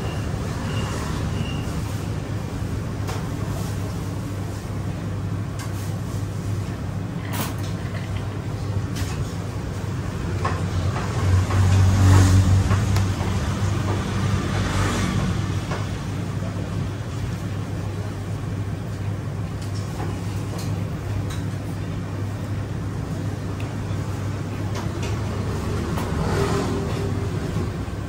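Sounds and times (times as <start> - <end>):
road traffic hum: 0.0 - 19.4, 20.7 - 28.0
vehicle passing: 11.1 - 15.7, 25.2 - 28.0.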